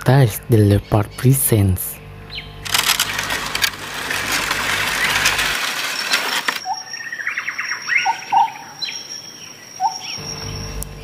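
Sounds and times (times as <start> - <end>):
birds chirping: 0.0 - 11.0
high-pitched insect whine: 0.8 - 11.0
crackly rustling: 2.6 - 6.7.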